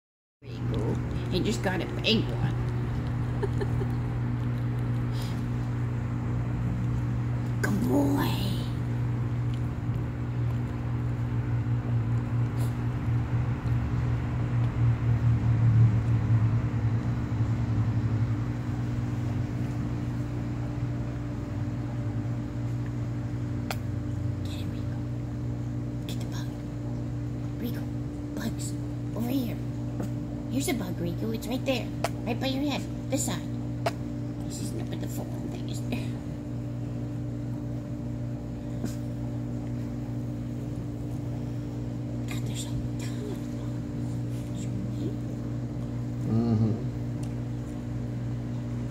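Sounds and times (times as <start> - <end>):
motor humming: 0.5 - 24.4.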